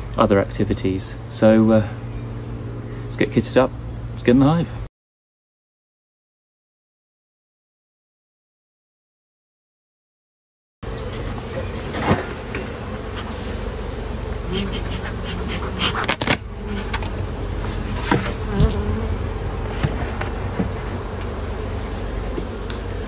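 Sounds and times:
bees buzzing: 0.0 - 4.9, 10.8 - 23.0.

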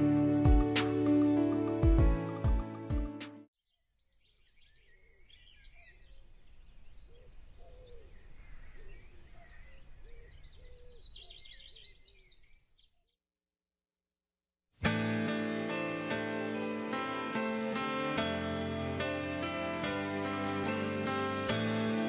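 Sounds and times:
birds chirping and calling: 3.8 - 13.1.

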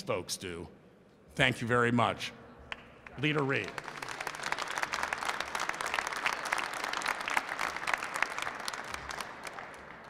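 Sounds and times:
people applauding: 2.7 - 10.0.

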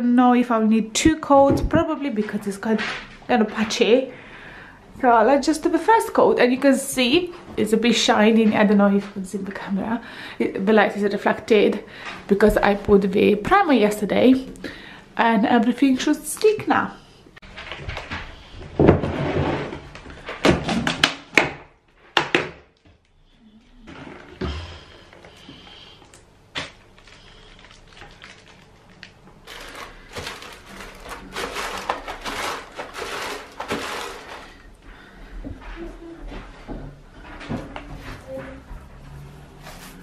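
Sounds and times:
paint roller rolling wet: 17.5 - 20.3, 23.6 - 25.9, 27.0 - 34.8.

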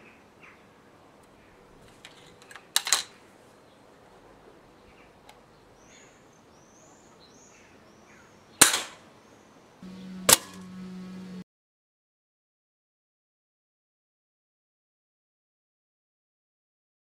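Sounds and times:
air rifle firing crack: 8.6 - 9.0
low steady hum: 9.8 - 11.4
pellet striking metal target trap: 10.2 - 10.7.

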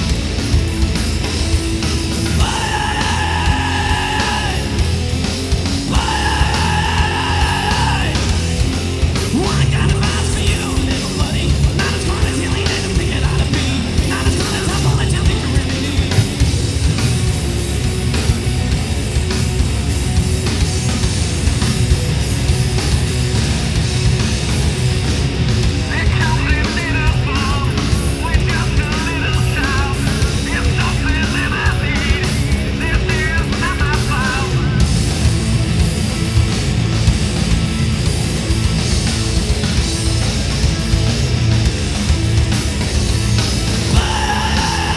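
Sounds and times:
rock band playing: 0.0 - 44.9
shouted lead vocal: 2.2 - 16.6, 25.8 - 35.1, 43.6 - 44.9.

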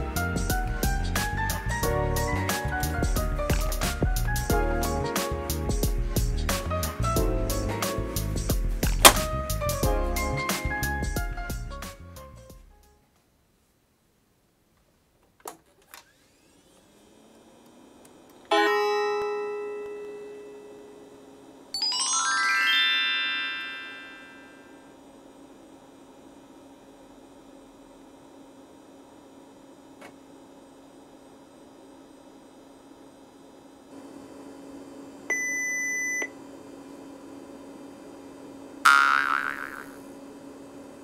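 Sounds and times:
computer startup chime: 21.8 - 24.8.

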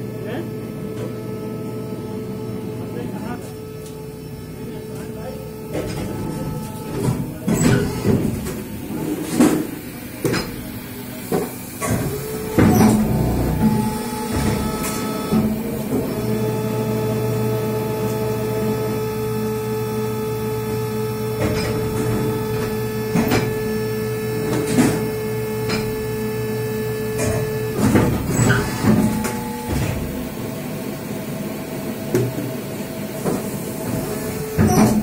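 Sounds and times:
machines humming: 0.0 - 35.0.

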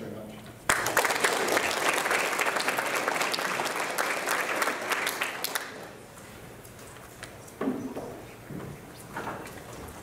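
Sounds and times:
audience applauding: 0.7 - 6.0.

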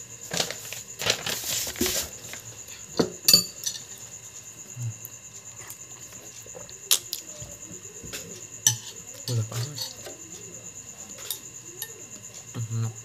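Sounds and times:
crickets chirping: 0.0 - 13.0
metal spoon clinking bowl: 3.3 - 4.0, 8.6 - 10.2, 11.1 - 12.0.

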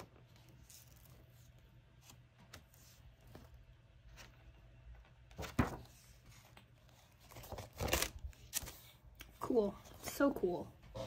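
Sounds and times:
paper pages rustling: 0.0 - 4.5, 5.2 - 9.4.

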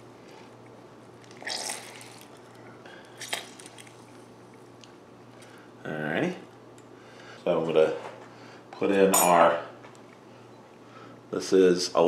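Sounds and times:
faint steady hum: 0.0 - 12.0
lemon juice squelch: 1.2 - 4.7.

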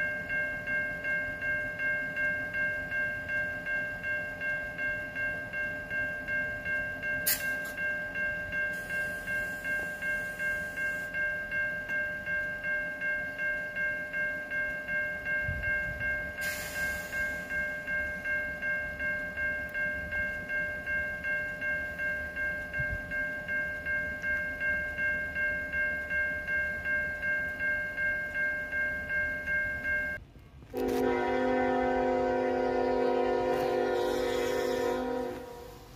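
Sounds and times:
electronic crossing bell ringing: 0.0 - 30.2.

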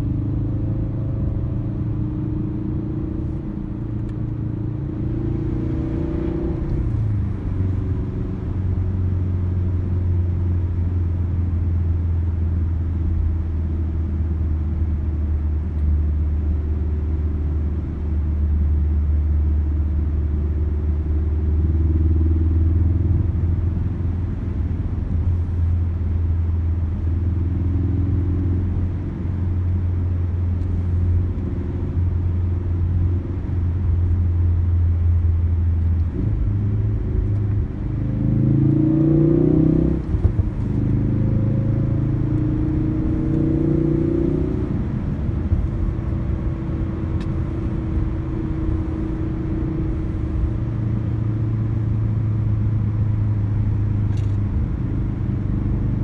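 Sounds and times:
car engine droning: 0.0 - 56.0
tyre and road noise: 21.6 - 56.0.

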